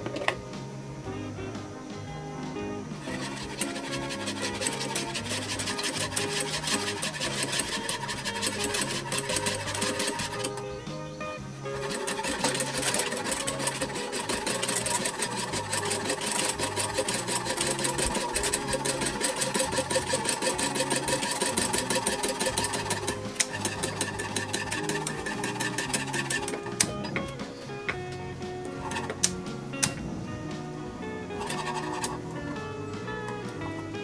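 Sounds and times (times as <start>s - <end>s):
background music with bass line: 0.0s - 34.0s
whisk beating in metal saucepan: 3.0s - 10.6s, 11.6s - 26.9s, 31.4s - 32.2s.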